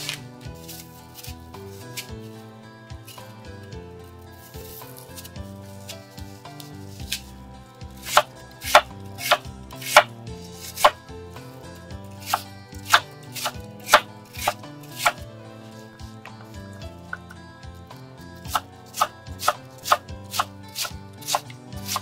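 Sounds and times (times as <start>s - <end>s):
knife slicing apple: 0.0s - 17.3s, 18.4s - 22.0s.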